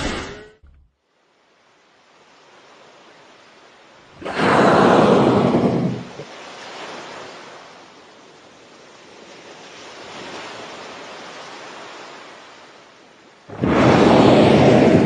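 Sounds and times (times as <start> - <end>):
sea noise: 1.4 - 15.0
whale blow whoosh: 4.2 - 6.3, 13.5 - 15.0.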